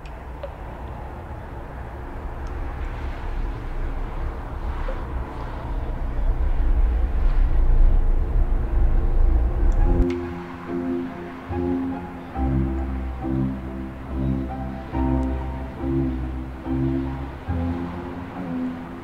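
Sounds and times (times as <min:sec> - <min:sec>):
deep low rumble: 0:02.1 - 0:10.4.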